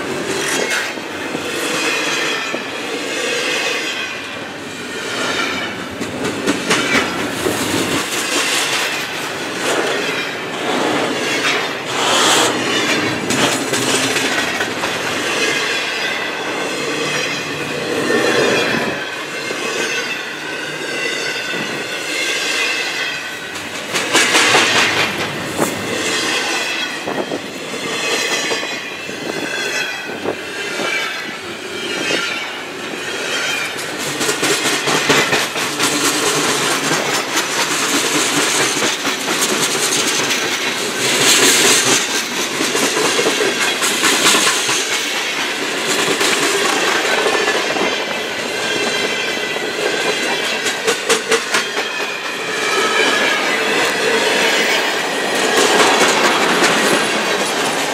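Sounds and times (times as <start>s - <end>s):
train wheels clicking over rail joints: 0.0s - 57.9s
high wheel squeal: 9.8s - 14.4s, 15.1s - 23.5s, 25.9s - 33.8s.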